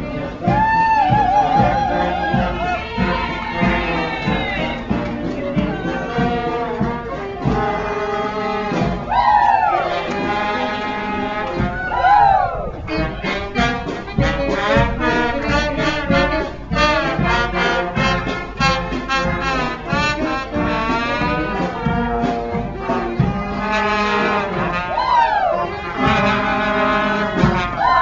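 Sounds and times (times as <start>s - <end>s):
brass marching band playing: 0.0s - 28.0s.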